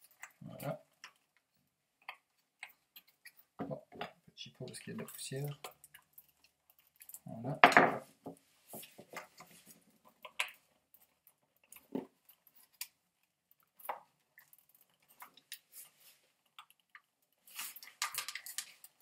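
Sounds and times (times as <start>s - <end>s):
plastic parts clicking and scraping: 8.8s - 19.0s.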